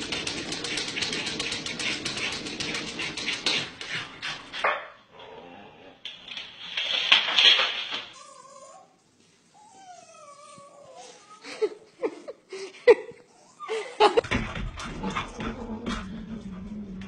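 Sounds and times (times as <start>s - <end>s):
dog whining: 8.2s - 9.0s, 9.6s - 11.7s.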